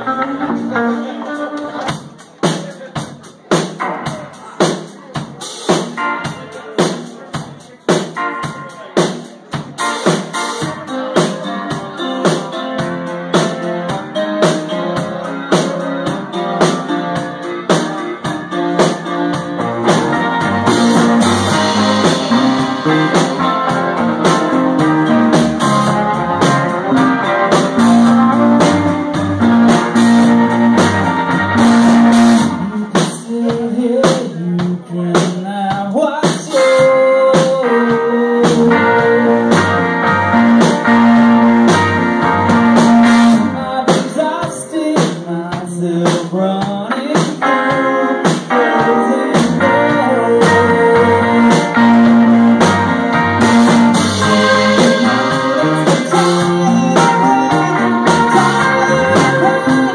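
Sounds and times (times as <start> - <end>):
electric guitar: 0.0 - 2.5, 9.6 - 59.9
steady drum beat: 1.8 - 59.9
deep bass: 15.9 - 35.0, 38.0 - 43.8, 48.8 - 59.9.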